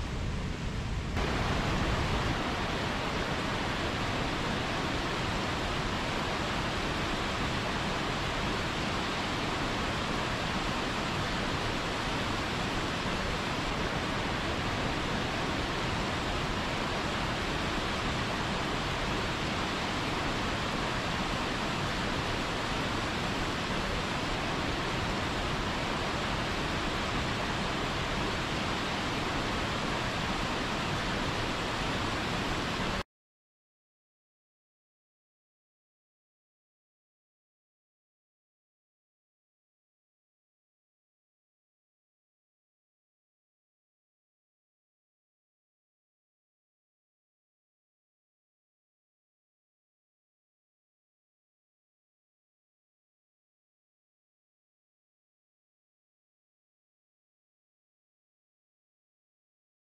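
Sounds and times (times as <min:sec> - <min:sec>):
waterfall rushing: 0:00.2 - 0:33.0.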